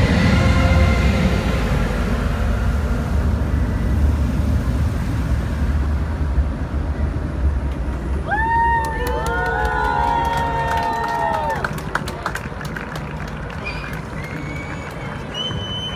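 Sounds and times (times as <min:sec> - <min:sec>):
soundtrack music: 0:00.0 - 0:07.9
low outdoor rumble: 0:00.0 - 0:15.9
crowd cheering: 0:08.1 - 0:15.9.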